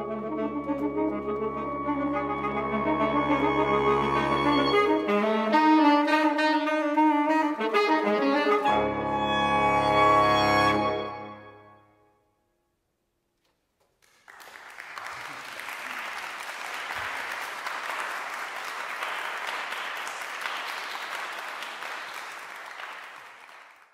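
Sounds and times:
audience applauding: 0:14.0 - 0:23.9.

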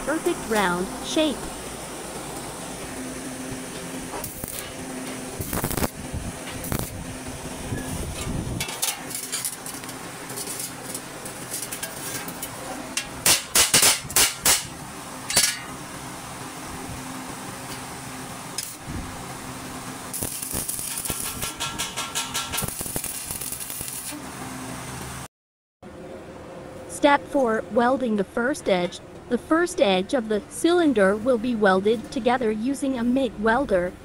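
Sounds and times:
welder arc crackling: 0:03.1 - 0:08.2, 0:19.8 - 0:24.2
hammer striking sheet steel: 0:13.0 - 0:14.7, 0:20.2 - 0:24.2.

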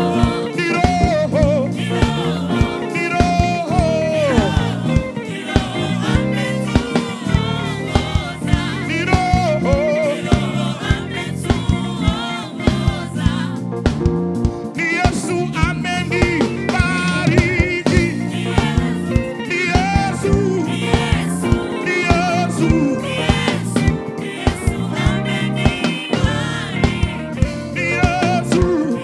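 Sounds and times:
choir and lead singers singing: 0:00.0 - 0:14.0, 0:14.6 - 0:29.0
band with keyboard and drums: 0:00.0 - 0:29.0.

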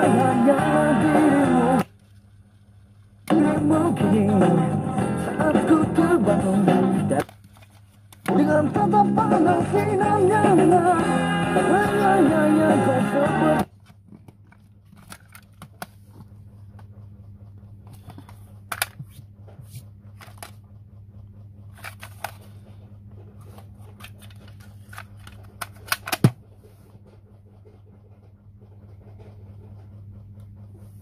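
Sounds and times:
low steady hum: 0:00.0 - 0:31.0
plastic cassette cases clacking: 0:13.7 - 0:16.0, 0:20.2 - 0:20.6, 0:21.7 - 0:22.4, 0:23.9 - 0:26.4.

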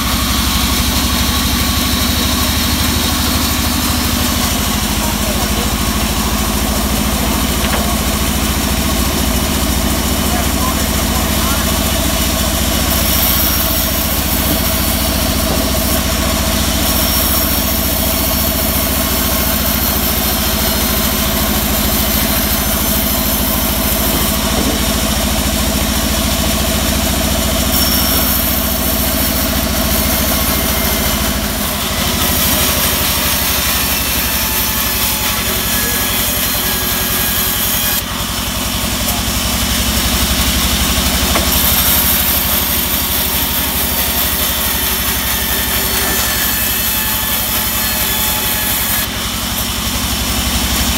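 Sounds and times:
band saw drone: 0:00.0 - 0:50.9
saw blade cutting hiss: 0:27.6 - 0:38.0.

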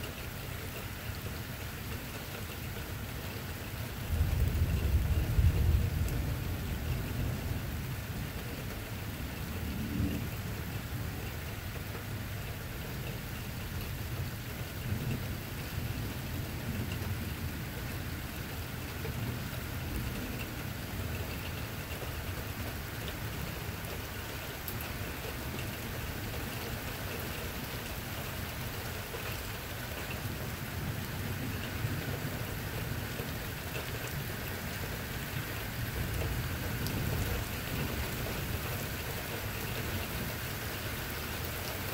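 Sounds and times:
steady rain falling: 0:00.0 - 0:41.9
thunder rumbling: 0:04.0 - 0:10.6, 0:35.8 - 0:40.4.

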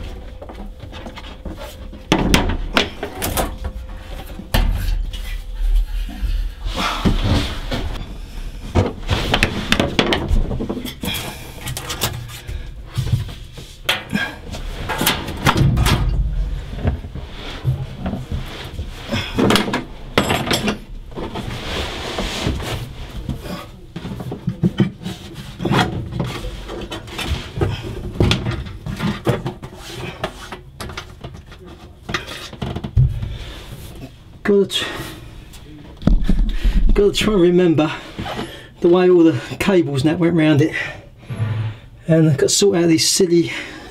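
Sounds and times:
hoses and fittings knocking: 0:08.6 - 0:21.5, 0:22.4 - 0:34.2.

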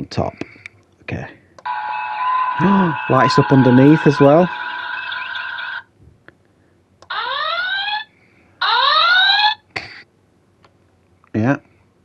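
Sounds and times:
rising electronic alarm whoop: 0:01.7 - 0:05.9, 0:07.1 - 0:09.6.

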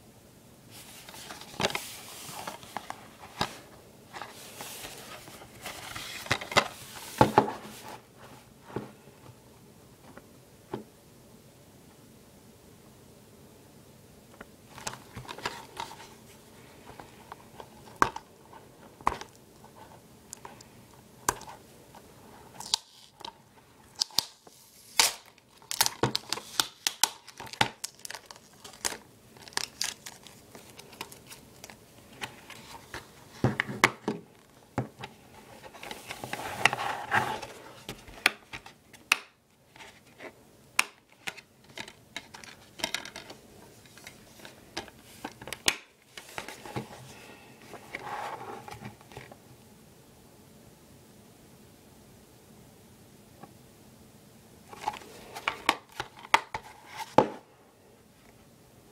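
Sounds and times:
plastic wrap tearing and crinkling: 0:22.6 - 0:32.8.

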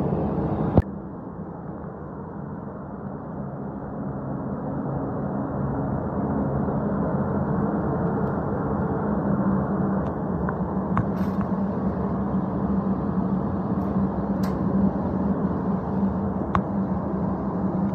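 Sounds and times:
ventilation hum and rush: 0:00.0 - 0:17.9.

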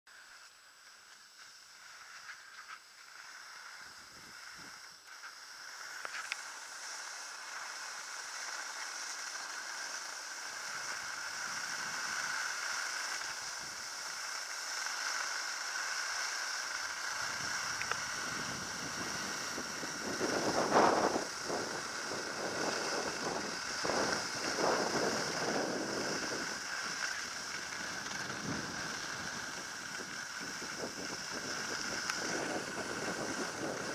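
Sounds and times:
skis sliding over snow: 0:00.1 - 0:33.9
wind rushing across microphone: 0:03.3 - 0:04.9, 0:16.4 - 0:33.9.

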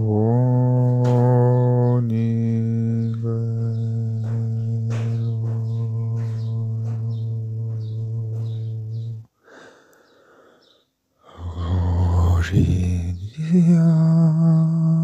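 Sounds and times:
low hummed chant drone: 0:00.0 - 0:09.3, 0:11.3 - 0:15.0
breathy intake: 0:09.4 - 0:11.4.

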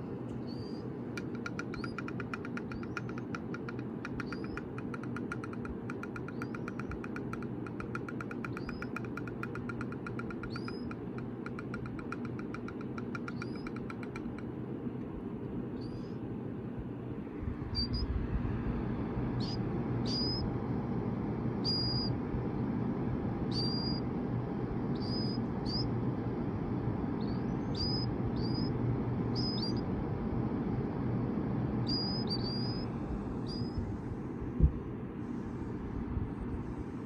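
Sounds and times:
steady low hum: 0:00.0 - 0:37.0
chicks peeping: 0:17.7 - 0:18.1, 0:19.4 - 0:20.5, 0:31.9 - 0:33.8.

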